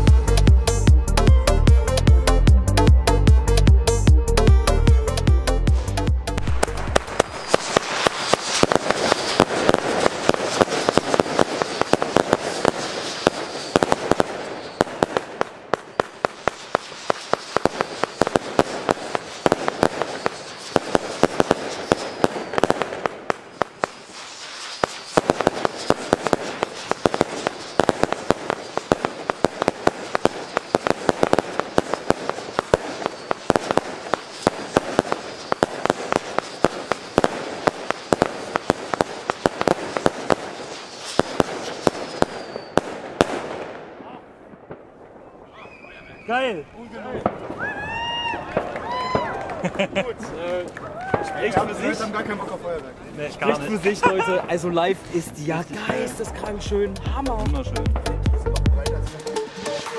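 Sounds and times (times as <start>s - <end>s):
firework bangs and crackles: 0.0s - 59.9s
firework shots whistling: 6.3s - 43.9s, 44.7s - 49.4s, 59.4s - 59.9s.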